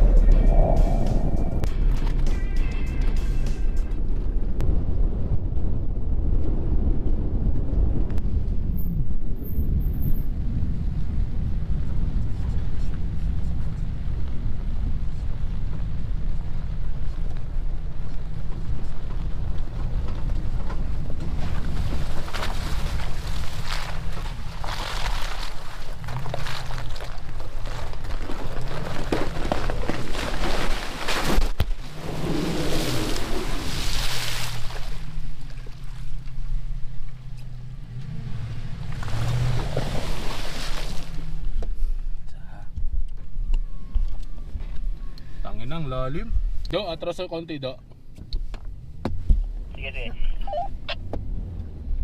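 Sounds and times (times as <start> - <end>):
rushing noise: 0.0 - 2.6
truck engine running: 0.0 - 4.6
truck rumbling: 0.0 - 52.0.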